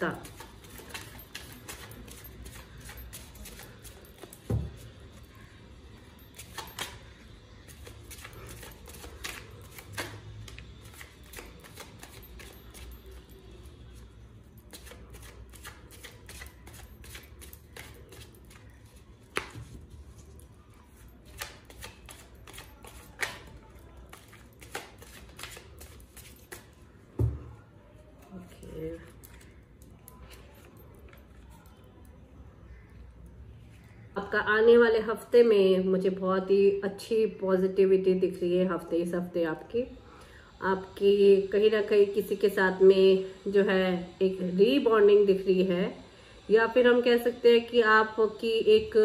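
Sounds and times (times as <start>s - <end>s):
cards being shuffled: 0.2s - 4.9s, 6.4s - 13.2s, 14.6s - 20.3s, 20.9s - 26.8s.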